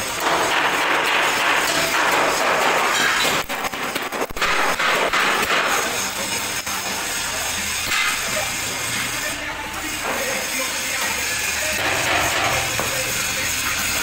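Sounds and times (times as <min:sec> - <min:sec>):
arc welding crackling hiss: 0:00.0 - 0:14.0
hammer striking steel drum: 0:11.8 - 0:13.1.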